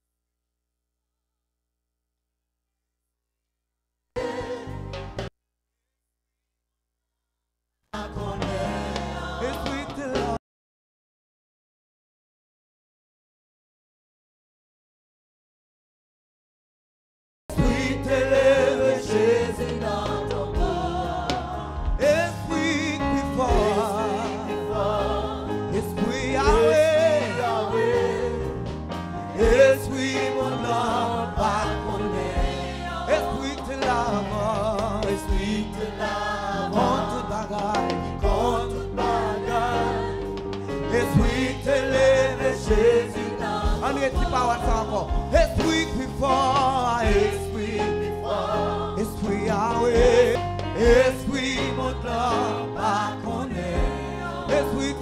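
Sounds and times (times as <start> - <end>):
backing singers: 4.2 - 5.2, 8.0 - 10.4, 17.5 - 55.0
man leading gospel singing: 8.2 - 10.4, 17.5 - 28.7, 29.3 - 55.0.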